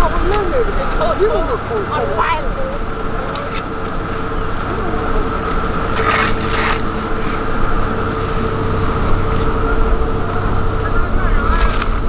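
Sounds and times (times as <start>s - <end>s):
diesel engines running: 0.0s - 12.0s
shovels scraping asphalt: 5.5s - 8.6s, 11.3s - 12.0s.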